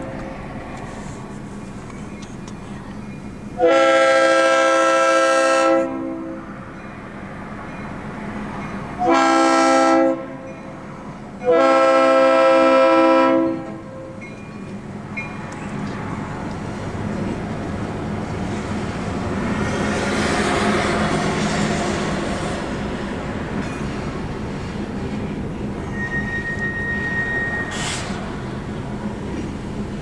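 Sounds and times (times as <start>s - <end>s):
diesel engine and rolling train: 0.0s - 30.0s
locomotive air horn blasts: 3.6s - 6.5s, 9.0s - 10.5s, 11.4s - 14.2s, 25.9s - 28.2s.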